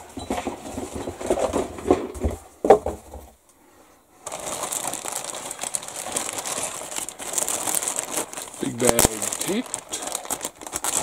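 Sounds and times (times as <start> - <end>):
plastic bag crinkling: 4.2 - 11.0.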